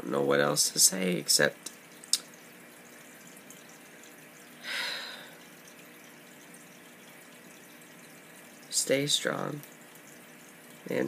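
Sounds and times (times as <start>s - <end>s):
faint room hum: 0.0s - 11.0s
person breathing: 4.6s - 5.4s.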